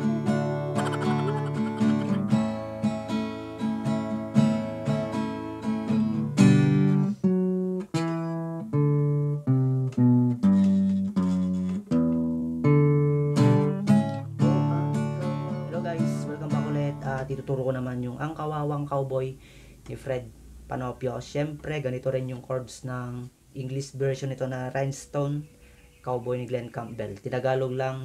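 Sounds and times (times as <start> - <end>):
plucked guitar notes: 0.0 - 17.6
acoustic guitar strumming: 0.0 - 17.8.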